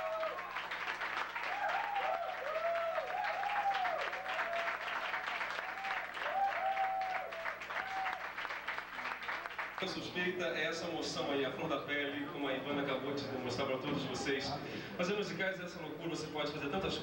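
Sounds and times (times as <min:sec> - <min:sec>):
whooping cheers: 0:00.0 - 0:08.4
audience applauding: 0:00.0 - 0:10.2.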